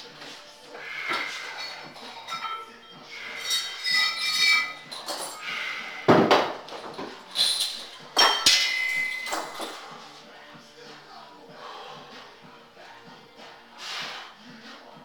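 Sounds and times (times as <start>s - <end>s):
metal chain and weight plate clanking: 1.2s - 5.6s, 6.9s - 9.9s.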